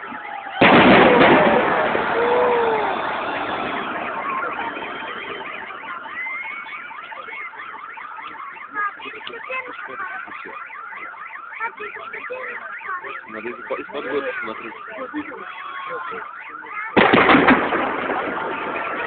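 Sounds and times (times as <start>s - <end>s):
car alarms wailing: 0.0s - 19.0s
fireworks burst echo: 0.6s - 7.0s, 17.0s - 19.0s.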